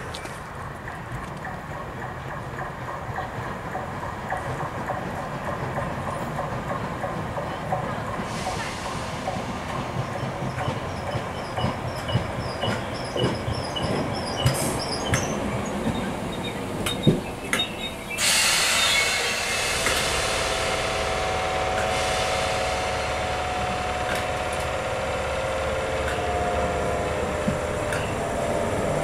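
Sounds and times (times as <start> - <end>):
wheels clicking on track: 0.0 - 18.3, 21.6 - 29.0
train whine: 0.0 - 29.0
loud hiss: 8.2 - 9.8, 18.1 - 26.0.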